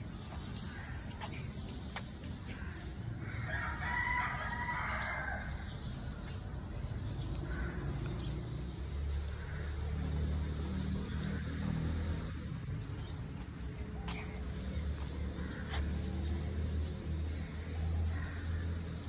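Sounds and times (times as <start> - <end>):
rooster crowing: 3.5 - 5.5.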